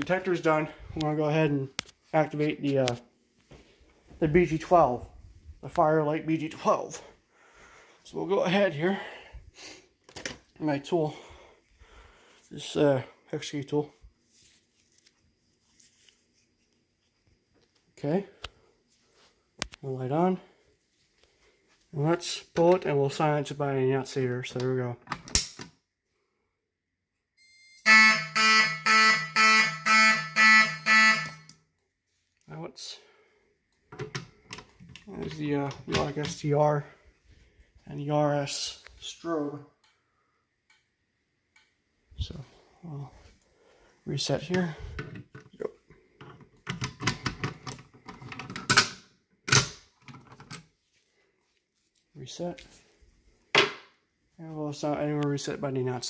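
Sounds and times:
pulsing fire alarm horn: 27.4s - 31.7s.

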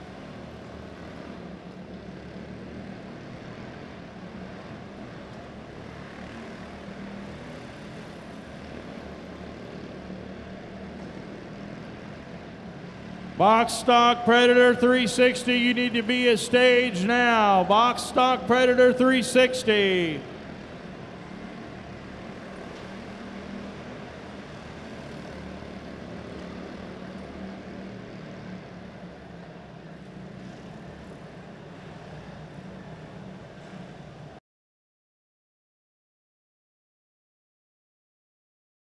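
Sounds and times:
small race car engines droning: 0.0s - 34.4s.

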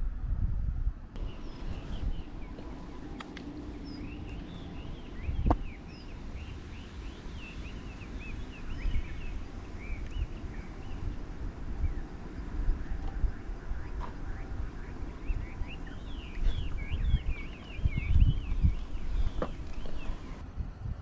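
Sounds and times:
low rumbling noise: 0.0s - 21.0s
small birds chirping: 1.2s - 20.4s.

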